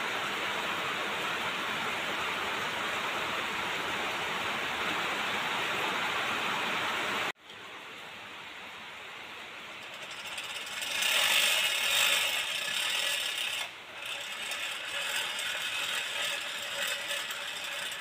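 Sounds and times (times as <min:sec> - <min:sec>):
hand-cranked air blower running: 0:09.8 - 0:18.0.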